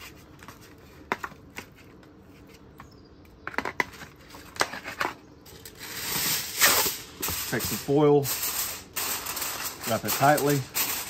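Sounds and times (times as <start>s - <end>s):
metal tongs scraping foil pan: 4.8s - 11.0s.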